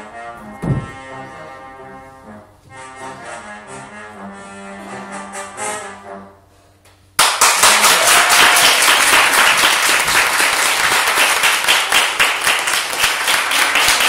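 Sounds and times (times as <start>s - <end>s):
audience applause: 7.2s - 14.0s.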